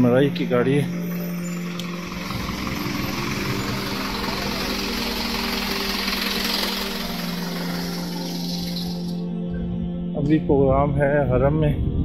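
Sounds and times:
truck engine idling: 0.0 - 9.5.

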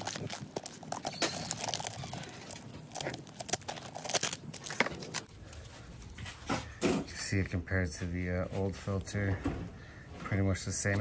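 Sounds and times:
plastic cover crinkling: 0.0 - 5.3.

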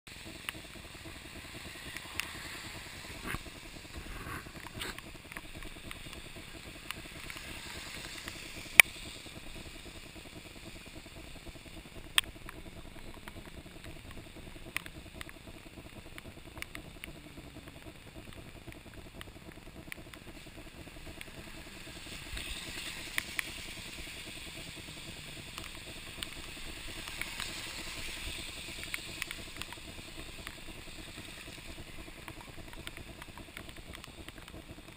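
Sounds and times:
bicycle tyres hissing on wet road: 0.1 - 11.7, 20.2 - 34.6
rain: 0.1 - 34.9.

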